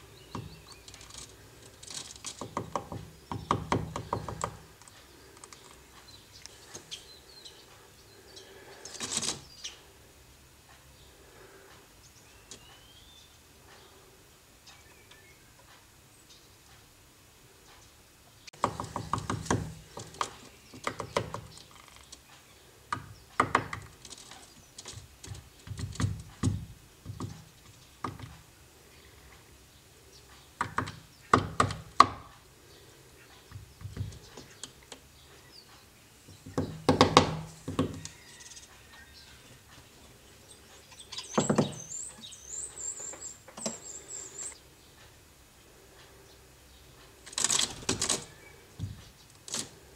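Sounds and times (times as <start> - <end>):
woodpecker pecking wood: 0.0 - 9.6, 18.5 - 29.5, 30.4 - 39.1, 40.6 - 44.6, 47.1 - 49.9.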